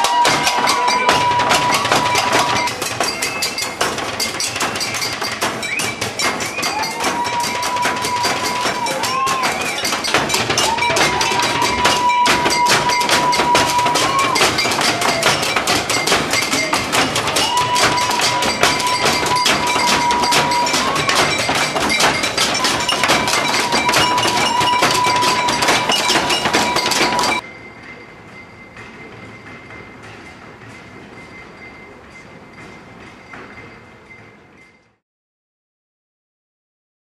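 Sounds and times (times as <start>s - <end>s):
banging on pots and pans: 0.0s - 27.4s.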